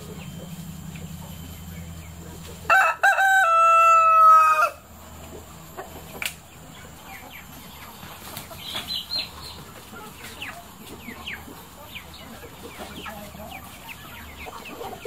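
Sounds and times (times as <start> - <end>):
chickens clucking and chirping: 0.0 - 15.0
rooster crowing: 2.7 - 4.9.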